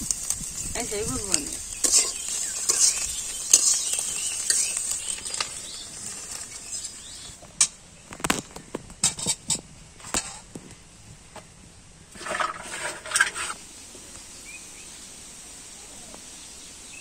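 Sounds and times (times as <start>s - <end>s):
vegetables sizzling in a pan: 0.0s - 7.6s, 12.2s - 17.0s
metal spatula scraping a pan: 1.3s - 7.4s, 12.2s - 13.6s.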